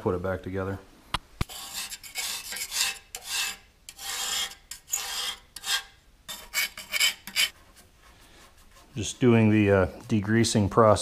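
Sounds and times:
hand scraper scraping metal: 1.4s - 10.2s.

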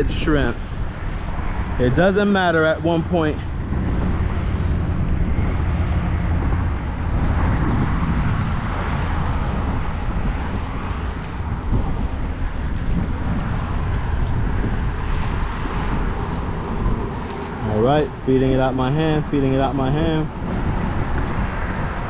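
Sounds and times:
wind on microphone: 0.0s - 22.0s.

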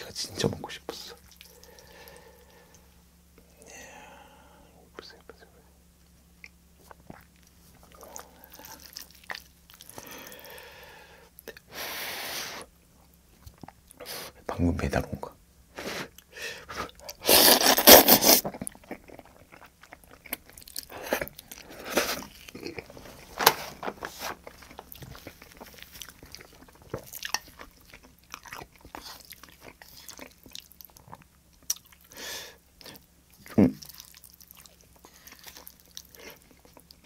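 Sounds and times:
wet chewing: 6.4s - 10.8s, 16.1s - 23.4s, 24.0s - 32.2s, 32.8s - 37.0s
slurping spaghetti: 16.7s - 19.5s.

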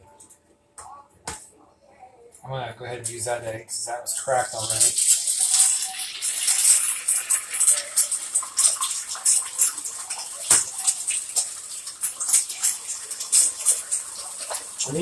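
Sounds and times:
eggs sizzling in oil: 3.8s - 15.0s.

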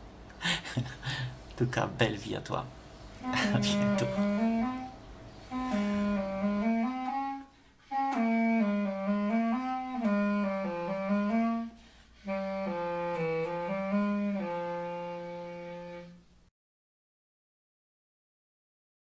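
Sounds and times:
slow woodwind melody: 3.2s - 16.3s.

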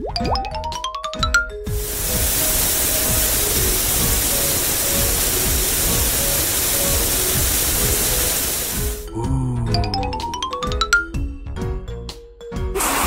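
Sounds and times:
soft background music: 0.0s - 12.8s
shower water spraying: 1.7s - 9.1s, 12.8s - 13.0s.

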